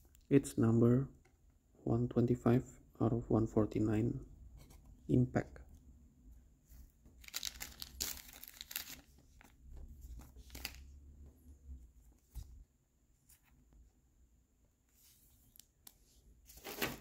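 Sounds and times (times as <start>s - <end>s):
plastic card sleeve crinkling: 7.1s - 10.9s.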